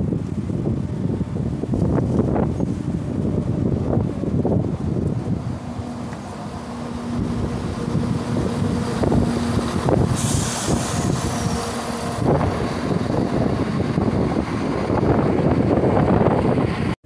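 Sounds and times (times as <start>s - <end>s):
diesel train engines rumbling: 0.0s - 17.0s
loud hiss: 5.9s - 13.7s.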